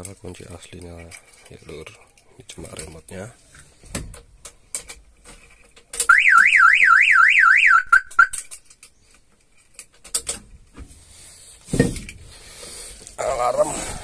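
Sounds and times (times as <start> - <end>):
car alarm siren warbling: 6.1 - 8.4.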